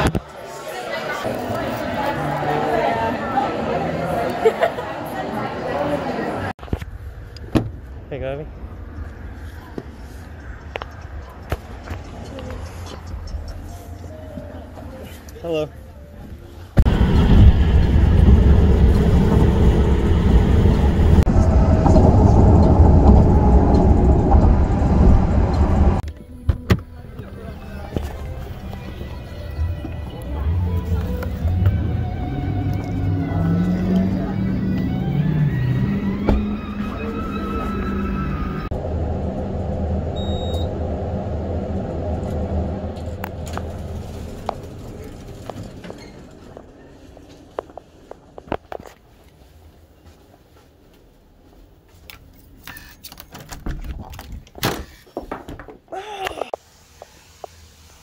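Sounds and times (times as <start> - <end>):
car wind and road noise: 6.2 - 54.7
elevator running rumble: 16.8 - 26.0, 27.0 - 47.6
short high beep: 40.2 - 40.7.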